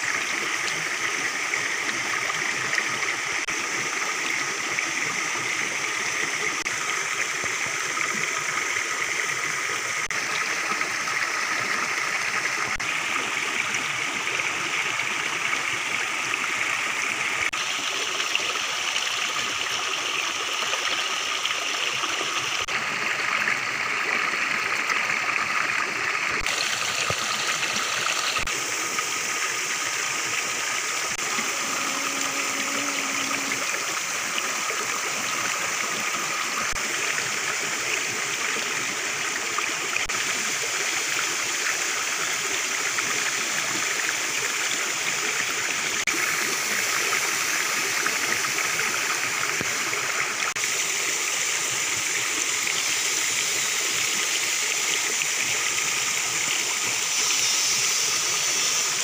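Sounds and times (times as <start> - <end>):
water rushing over stones: 0.0 - 59.0.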